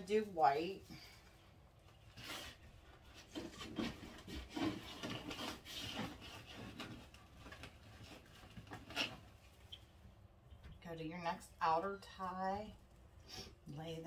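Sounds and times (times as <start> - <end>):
mesh rustling and crinkling: 1.0 - 10.0.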